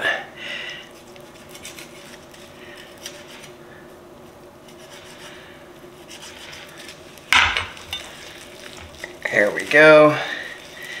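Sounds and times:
steady low hum: 0:00.0 - 0:11.0
knife scraping on bone: 0:01.0 - 0:03.6, 0:04.6 - 0:09.2.

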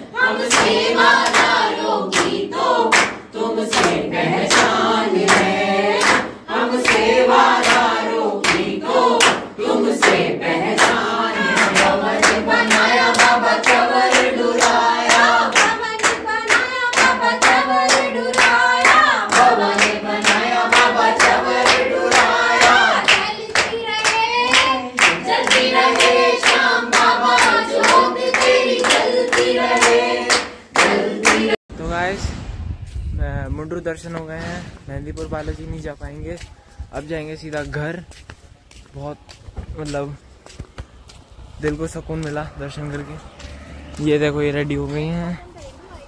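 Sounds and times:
group singing: 0:00.0 - 0:31.6
rhythmic hand clapping: 0:00.2 - 0:31.6.

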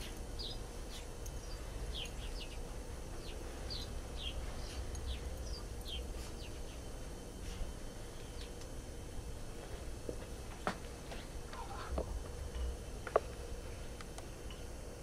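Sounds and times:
small birds chirping: 0:00.0 - 0:08.9
low steady rumble: 0:00.0 - 0:15.0.

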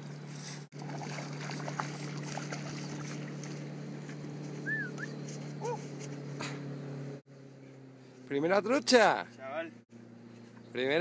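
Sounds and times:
low motor hum: 0:00.0 - 0:11.0
fish splashing at surface: 0:00.8 - 0:03.7.

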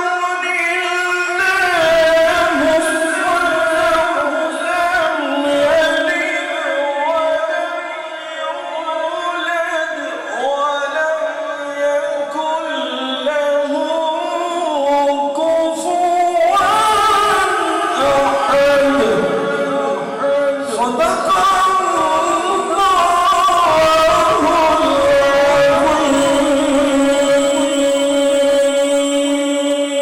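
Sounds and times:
man chanting into microphone: 0:00.0 - 0:30.0.

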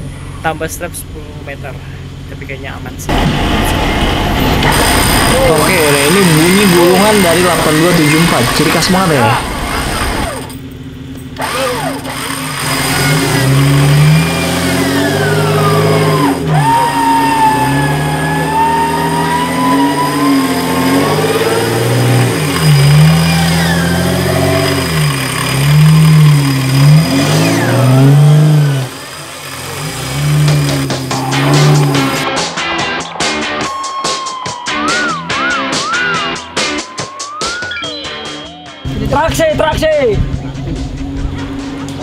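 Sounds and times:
winch motor whining under load: 0:04.5 - 0:10.6, 0:11.3 - 0:32.2.

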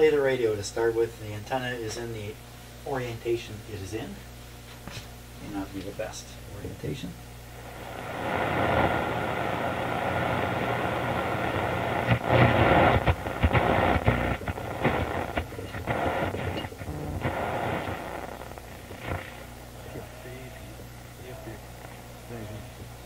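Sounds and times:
low steady hum: 0:00.0 - 0:23.0
radio static hiss: 0:00.0 - 0:23.0
radio crackles: 0:07.5 - 0:23.0.

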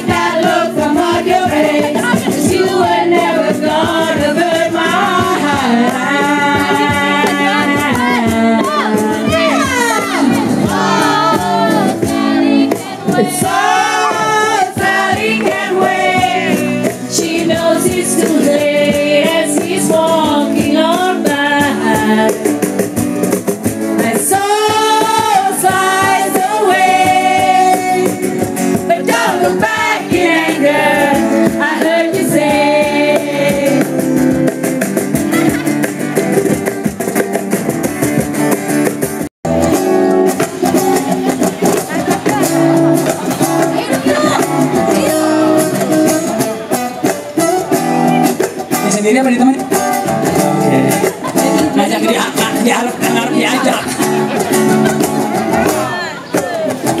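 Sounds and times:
instrumental backing music: 0:00.0 - 0:57.0
woman singing slow song: 0:00.2 - 0:10.4, 0:17.1 - 0:22.4.

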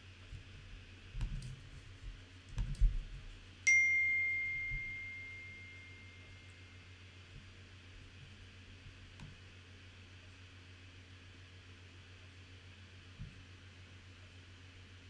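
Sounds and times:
message alert ding: 0:03.7 - 0:06.4.

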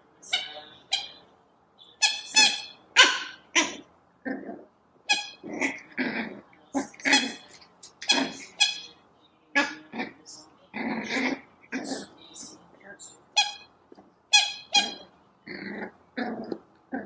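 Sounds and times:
puppy barking and yapping: 0:02.5 - 0:03.8.

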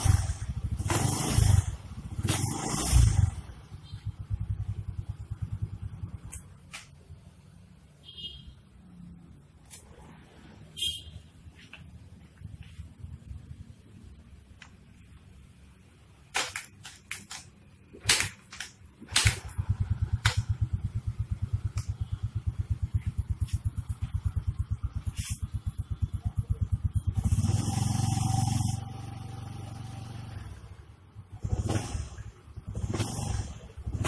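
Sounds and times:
scooter engine idling: 0:03.0 - 0:06.4, 0:19.4 - 0:30.2.

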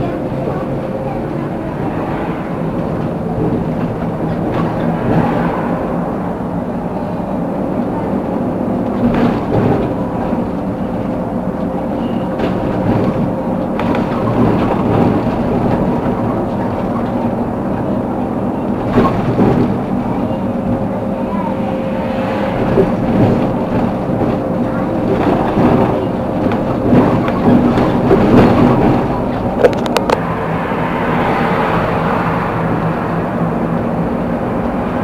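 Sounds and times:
vehicle bumps: 0:00.0 - 0:06.4, 0:07.0 - 0:30.2
tyre and road rumble: 0:00.0 - 0:35.0
vehicle engine hum: 0:00.0 - 0:35.0.

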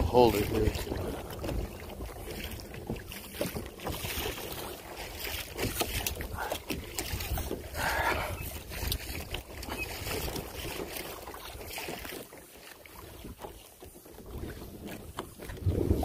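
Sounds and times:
water against kayak hull: 0:00.0 - 0:16.0
wind on microphone: 0:05.6 - 0:10.9, 0:14.2 - 0:16.0.

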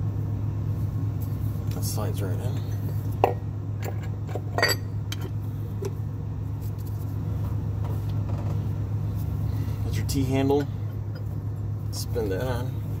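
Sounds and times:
metal tool clinking: 0:03.2 - 0:05.2.

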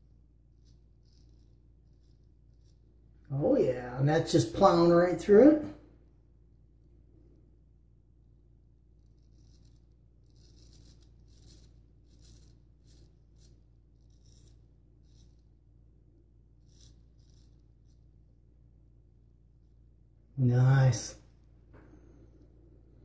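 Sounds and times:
razor rasping on stubble: 0:00.6 - 0:02.8, 0:09.0 - 0:15.5, 0:16.6 - 0:18.0.

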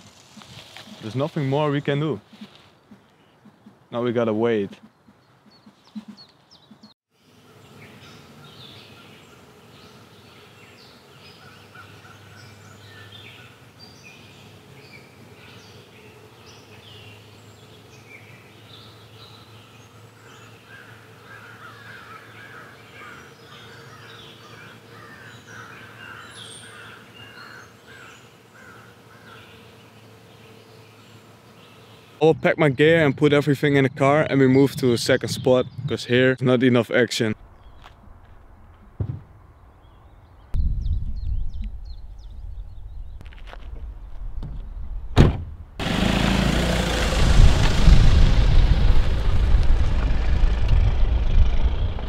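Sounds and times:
songbirds chirping: 0:00.8 - 0:45.0
steady low hum: 0:45.8 - 0:52.0.

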